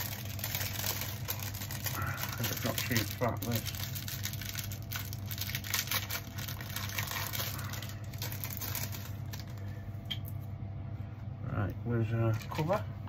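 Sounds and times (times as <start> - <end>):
plastic wrapping crinkling: 0.0 - 10.2.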